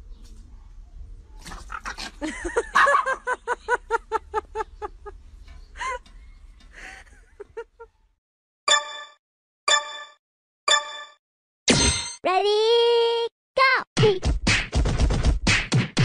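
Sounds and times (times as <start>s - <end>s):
dog yapping rapidly: 1.4s - 2.2s.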